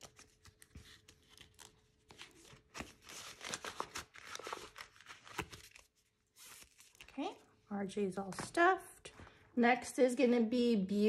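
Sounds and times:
banknotes rustling: 0.0s - 7.2s
plastic envelope crinkling: 0.0s - 7.3s.

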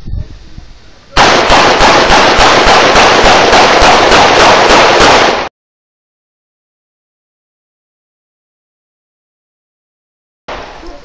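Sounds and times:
rapid handgun shots: 1.2s - 5.5s, 10.5s - 10.8s.

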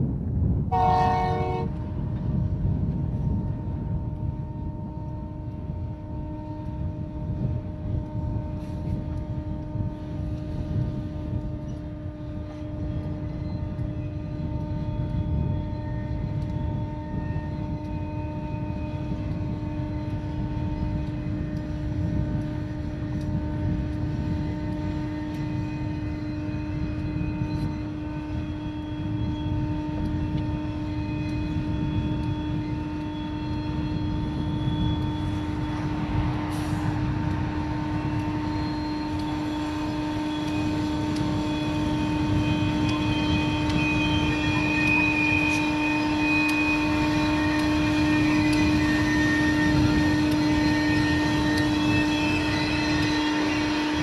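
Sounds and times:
diesel locomotive engine drone: 0.0s - 54.0s.

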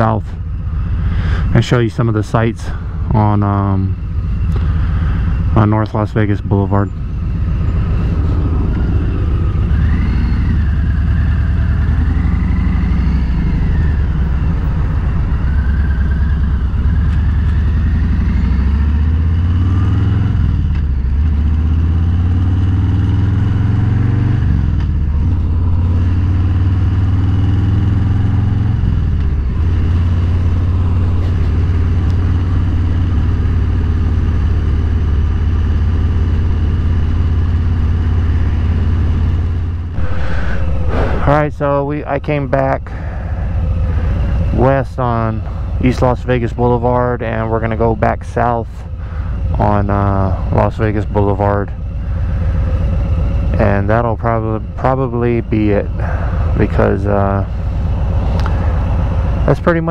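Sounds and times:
motorcycle engine revving: 0.0s - 59.9s
faint wavering whine: 3.8s - 18.0s, 38.2s - 59.8s.

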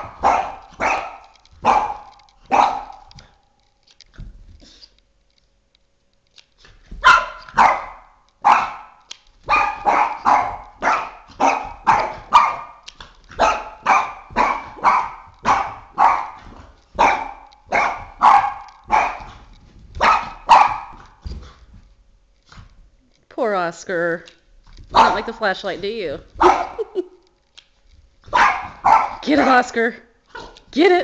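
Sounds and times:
dog barking sharply: 0.0s - 3.1s, 7.0s - 12.8s, 13.4s - 19.3s, 20.0s - 21.0s, 24.9s - 25.4s, 26.4s - 26.8s, 28.3s - 29.7s.

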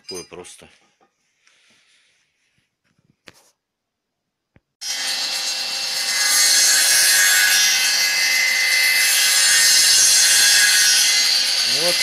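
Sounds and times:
circular saw cutting wood: 4.8s - 12.0s.

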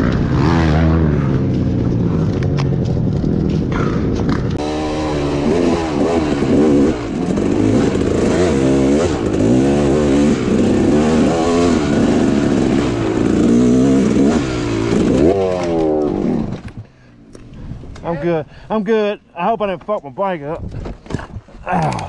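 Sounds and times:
dirt bike engine revving: 0.0s - 16.7s
dirt bike crashing: 0.0s - 16.8s.

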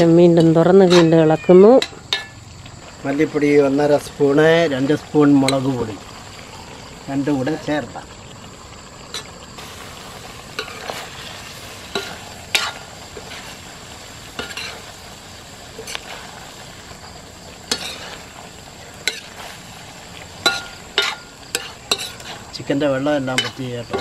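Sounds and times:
chicken sizzling in a pan: 0.0s - 24.0s
spoon scraping and knocking pan: 17.6s - 18.2s, 20.4s - 22.6s, 23.2s - 24.0s.

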